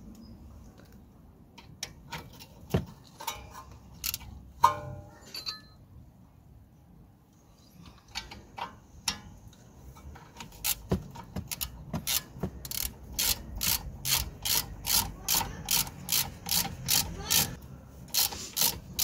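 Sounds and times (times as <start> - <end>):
ratchet wrench clicking: 4.0 - 4.3, 10.4 - 19.0.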